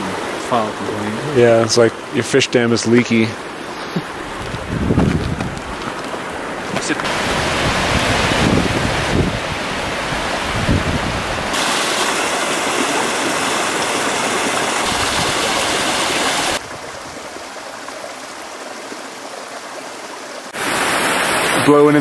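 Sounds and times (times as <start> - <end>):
creek splashing over rocks: 11.4 - 22.0.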